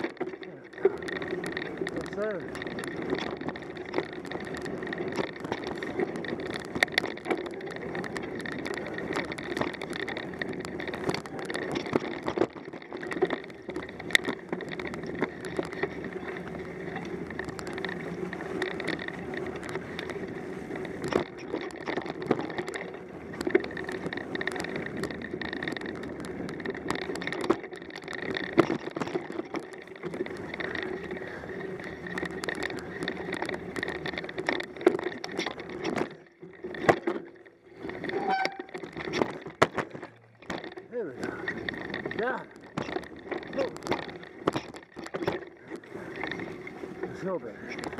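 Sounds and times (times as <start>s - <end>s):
bike knocks and rattles: 0.0s - 47.9s
bike tyres rolling on dirt: 0.0s - 47.9s.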